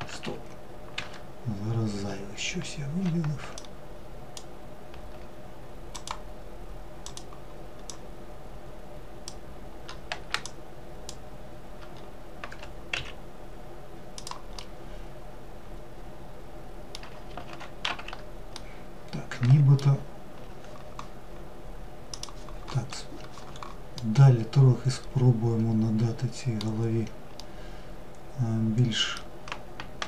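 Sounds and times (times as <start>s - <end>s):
faint hum: 0.0s - 30.0s
computer keyboard key clicks: 6.0s - 6.2s, 7.0s - 8.0s, 9.3s - 11.2s, 14.2s - 14.7s, 22.1s - 22.4s.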